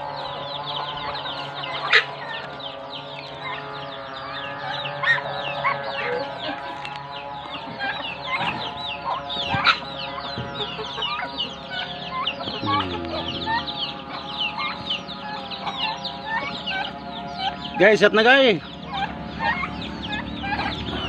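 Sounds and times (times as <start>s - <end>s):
poultry peeping and clucking: 0.0s - 21.0s
low bird call: 7.6s - 17.8s
steady droning tone: 8.8s - 17.7s.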